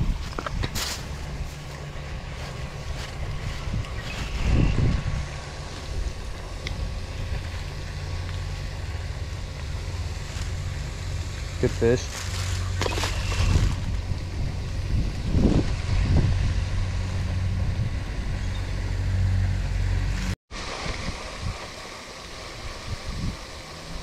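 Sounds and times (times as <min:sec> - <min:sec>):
wind buffeting microphone: 0:00.0 - 0:10.7, 0:13.1 - 0:19.4, 0:22.4 - 0:24.0.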